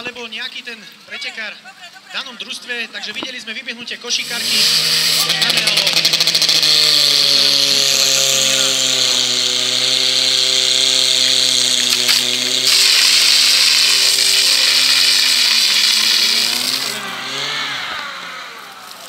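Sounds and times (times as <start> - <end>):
pump engine running at high revs: 4.2 - 19.0
water jets hissing from nozzles: 7.0 - 17.0.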